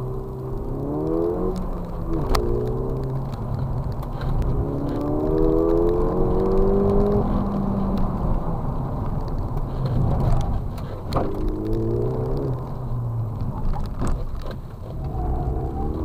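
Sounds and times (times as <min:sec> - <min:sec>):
car engine accelerating: 0:00.0 - 0:16.0
road rumble: 0:00.0 - 0:16.0.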